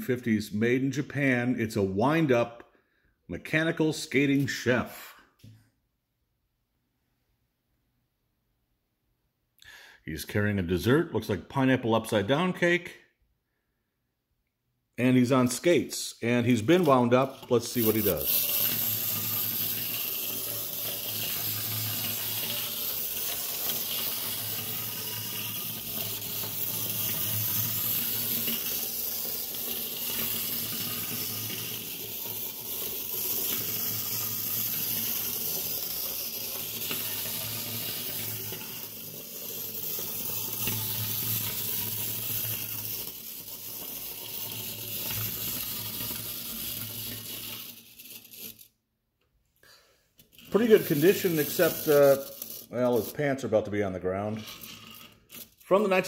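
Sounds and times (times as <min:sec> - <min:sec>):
clockwork toy whirring: 0:15.3 - 0:48.8, 0:50.2 - 0:56.0
roller skates rolling on table: 0:16.4 - 0:48.7, 0:50.2 - 0:56.0.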